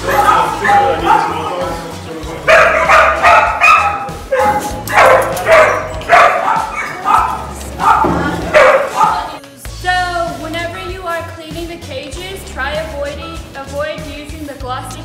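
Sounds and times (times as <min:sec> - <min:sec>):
dogs barking: 0:00.0 - 0:09.4
background music: 0:00.0 - 0:15.0.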